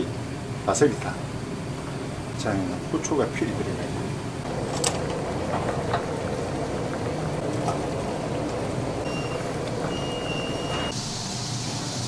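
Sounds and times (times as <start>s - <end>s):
hood fan running: 0.0s - 12.0s
soup boiling: 4.4s - 11.2s.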